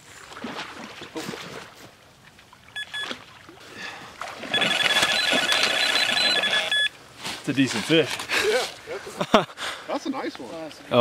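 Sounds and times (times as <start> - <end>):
water splashing: 0.0 - 6.9
electronic alarm beeping: 2.8 - 3.1, 4.5 - 7.0.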